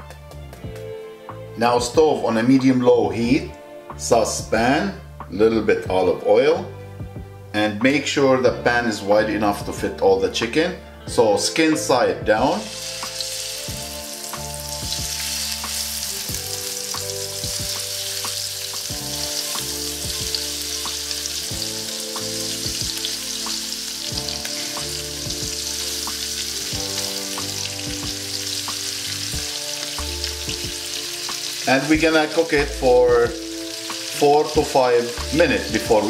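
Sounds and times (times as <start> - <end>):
chicken sizzling in oil: 12.5 - 36.0.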